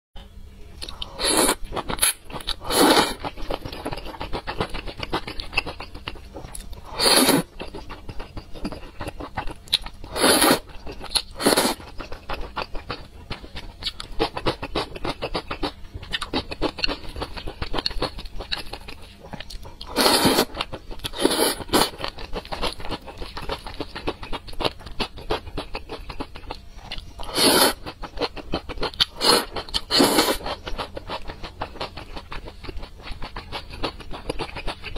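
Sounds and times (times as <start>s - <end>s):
slurping noodles: 1.2s - 3.3s, 6.9s - 7.5s, 10.1s - 10.7s, 19.9s - 21.9s, 27.2s - 28.0s, 29.1s - 30.5s.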